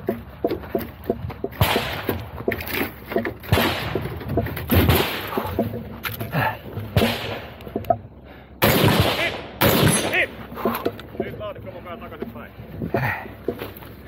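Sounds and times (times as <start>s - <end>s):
gear clicking and rattling: 0.0s - 8.2s, 9.7s - 14.0s
gunshots: 1.6s - 2.2s, 3.5s - 5.4s, 7.0s - 7.6s, 8.6s - 10.4s.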